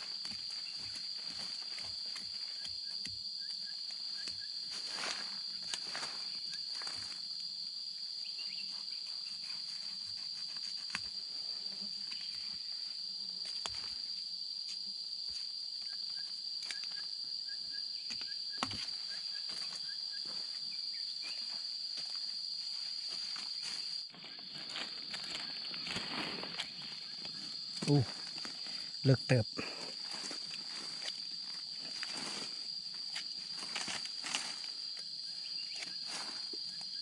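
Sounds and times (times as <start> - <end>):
insect high-pitched drone: 0.0 - 37.0
faint chirps: 26.4 - 30.0.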